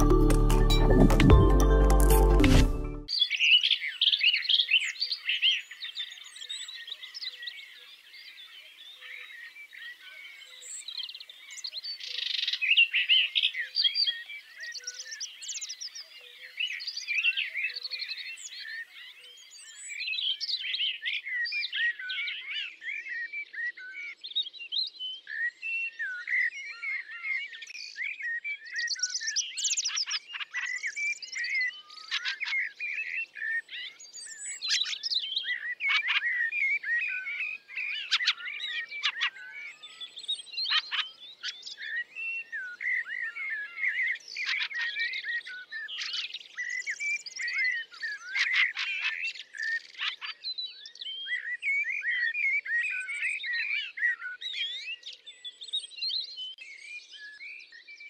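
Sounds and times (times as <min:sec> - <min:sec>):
songbirds chirping and warbling: 0:03.1 - 0:58.0.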